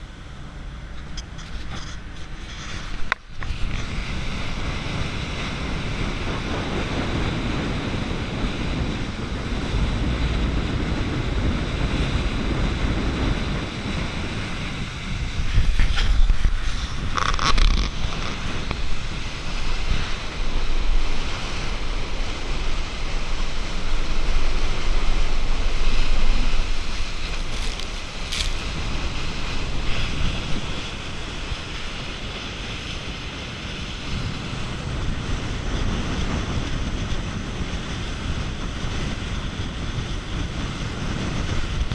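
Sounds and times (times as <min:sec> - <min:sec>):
water rushing along boat hull: 0:00.0 - 0:41.9
wind buffeting microphone: 0:00.0 - 0:41.9
sharp splashes of spray: 0:15.2 - 0:32.3.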